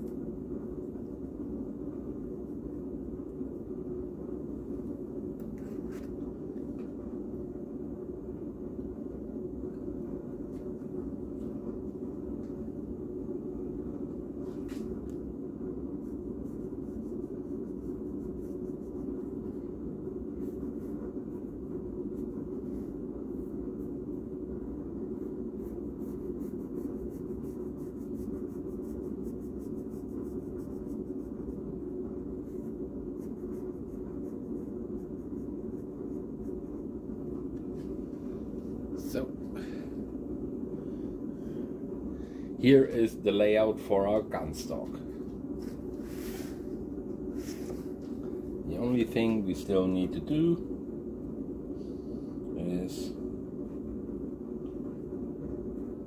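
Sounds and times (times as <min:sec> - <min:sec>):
low background hum: 0:00.0 - 0:56.0
pencil scratching on paper: 0:15.9 - 0:24.1, 0:25.0 - 0:37.0.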